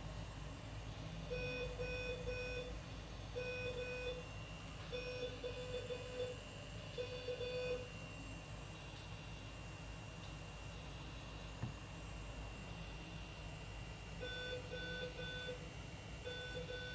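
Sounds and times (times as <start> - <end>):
medical alarm beeping: 1.2 - 8.0, 14.2 - 15.6, 16.2 - 16.9.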